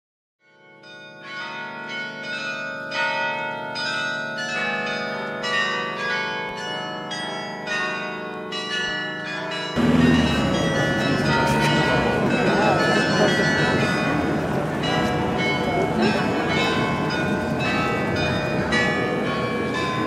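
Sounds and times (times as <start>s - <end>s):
church bells ringing: 0.4s - 20.0s
loud noisy sound: 9.8s - 14.4s.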